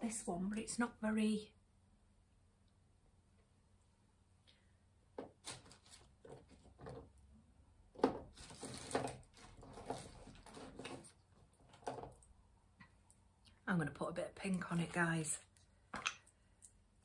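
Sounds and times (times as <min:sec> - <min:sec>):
small knocks clicks and rustles: 0:07.9 - 0:12.9.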